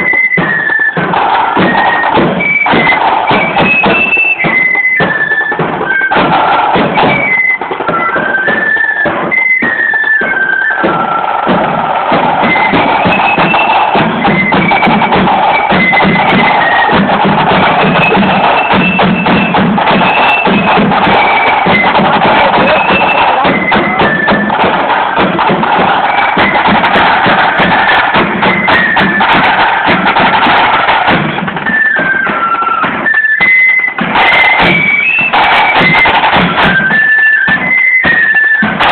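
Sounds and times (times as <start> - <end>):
flutes playing melody: 0.0 - 38.9
snare drum rolls: 0.0 - 38.9
bass drum beat: 11.4 - 31.7.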